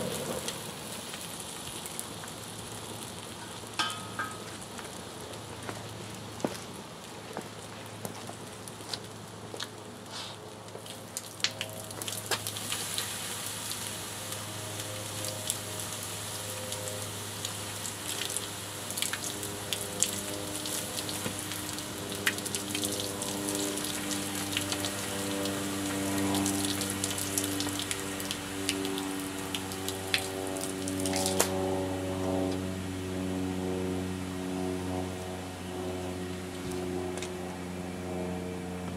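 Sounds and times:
fizzing sizzle: 0.0s - 6.4s, 10.7s - 31.4s
burning plastic crackling and popping: 0.0s - 31.6s
steady low hum: 13.6s - 38.9s.

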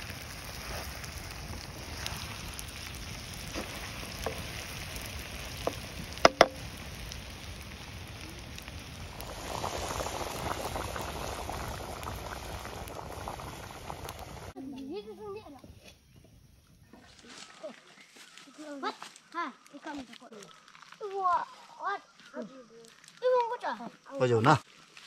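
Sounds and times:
curry bubbling at the boil: 0.0s - 14.6s
food sizzling in oil: 0.0s - 15.3s
sharp knocks: 5.7s - 6.6s.

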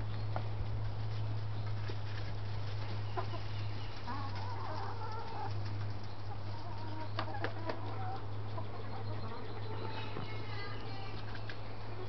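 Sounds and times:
hens clucking: 0.0s - 12.0s
steady low hum: 0.0s - 12.0s.

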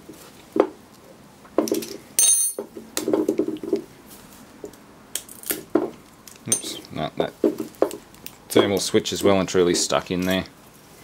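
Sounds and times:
hand tools clinking on metal: 1.8s - 2.7s, 6.5s - 6.8s.

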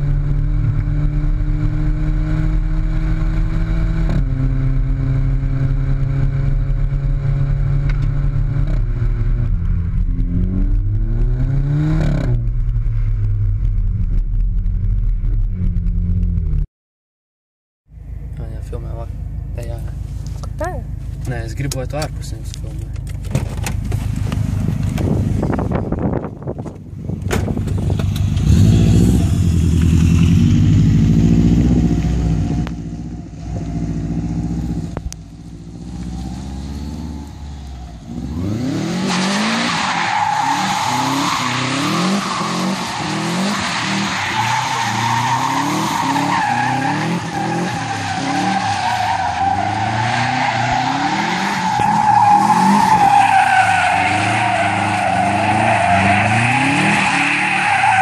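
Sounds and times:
car engine revving: 0.0s - 16.6s, 18.3s - 58.0s
tyres squealing on asphalt: 37.8s - 58.0s.

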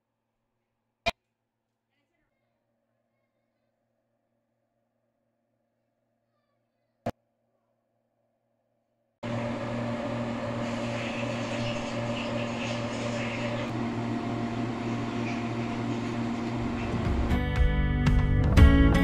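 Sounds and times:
electric fan humming: 9.2s - 18.3s.

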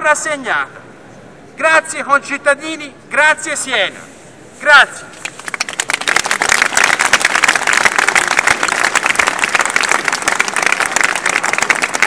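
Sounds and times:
crowd applauding: 5.2s - 12.0s.

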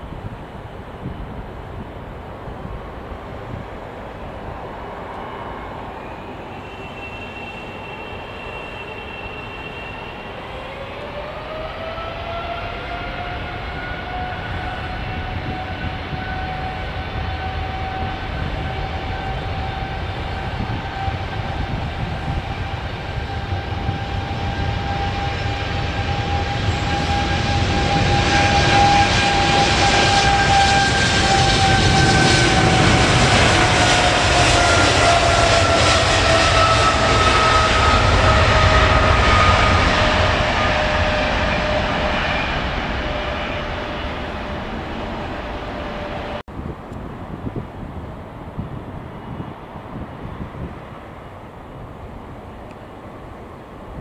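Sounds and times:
jet engines spooling up: 5.0s - 46.4s
high engine whine: 13.0s - 47.9s.

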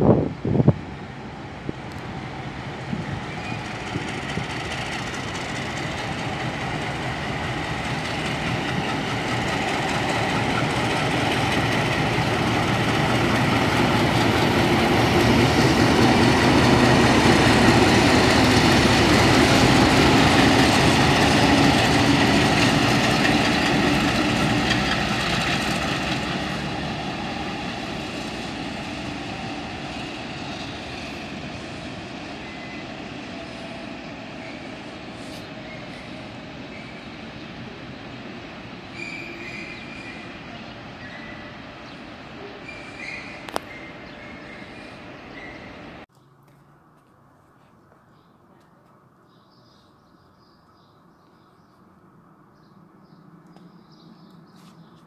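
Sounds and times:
diesel locomotive passing by: 0.0s - 46.1s.

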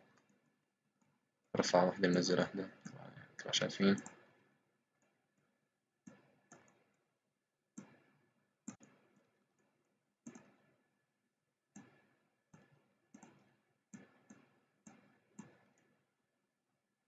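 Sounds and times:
computer mouse clicking: 3.9s - 4.3s, 6.0s - 7.0s, 7.8s - 10.7s, 11.7s - 16.0s.

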